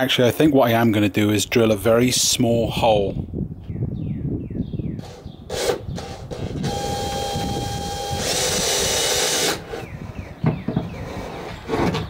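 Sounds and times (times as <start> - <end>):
drill bit boring through plywood: 5.0 - 9.9
power drill whining: 5.0 - 9.9.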